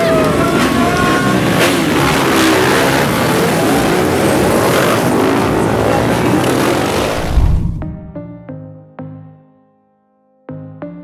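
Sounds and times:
motorcycle engines idling and revving: 0.0 - 7.6.

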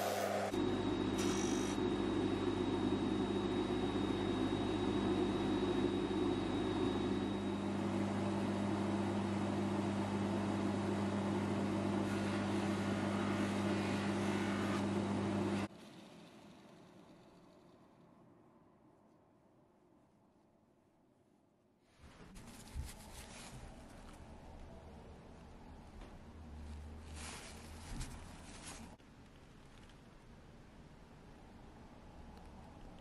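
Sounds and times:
buffing wheel whirring: 0.0 - 0.6
polishing motor humming: 0.0 - 0.6
thin high whine: 0.0 - 7.7.

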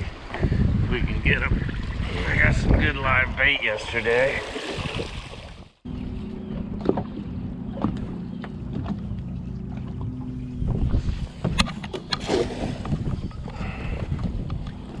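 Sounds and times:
water splashes: 1.4 - 5.8
boat motor humming: 5.4 - 15.0.

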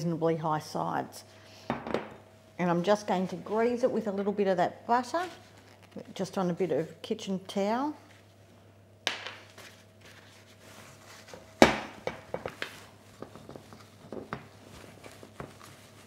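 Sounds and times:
paper rustling: 9.4 - 11.5
paper rubbing inside dish: 9.7 - 11.4, 14.6 - 16.0.

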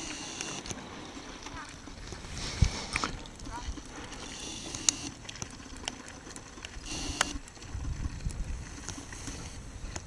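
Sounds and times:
wind rumbling on microphone: 1.4 - 4.2, 6.7 - 10.0.

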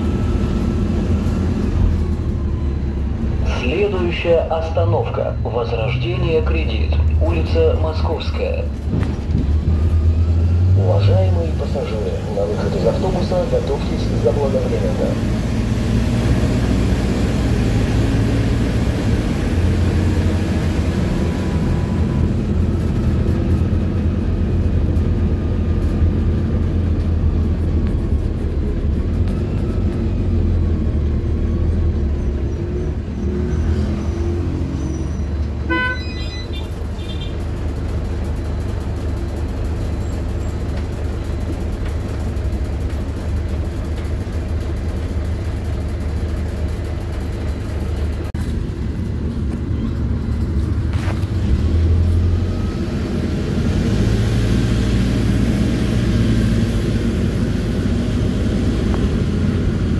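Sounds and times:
bus engine and road noise: 0.0 - 59.9
horn toot: 35.7 - 37.4.

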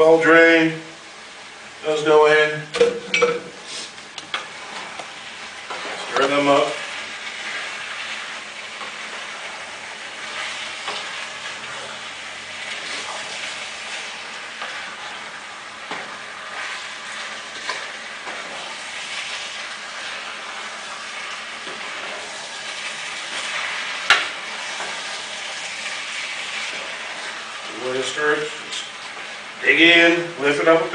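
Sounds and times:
food sizzling: 0.0 - 30.9
wooden spoon scraping saucepan: 5.7 - 7.8.

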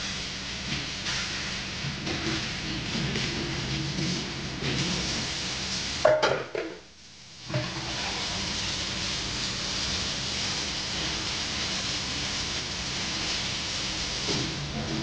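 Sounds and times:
steady hiss: 0.0 - 15.0
dishes clinking in a sink: 6.0 - 6.8.

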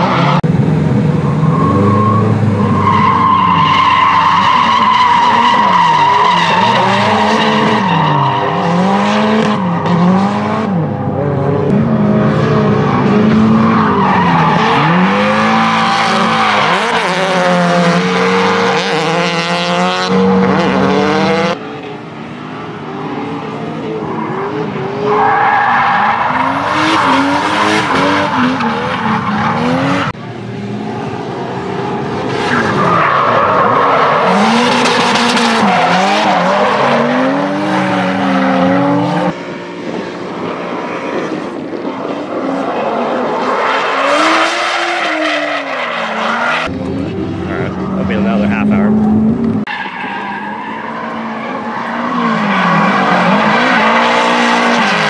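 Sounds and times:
car engines revving: 0.0 - 55.0.

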